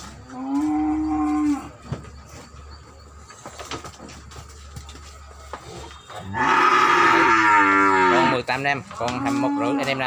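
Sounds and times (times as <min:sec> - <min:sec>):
soft knocks and shuffling: 0:01.8 - 0:06.2
cow mooing loudly: 0:06.3 - 0:08.4.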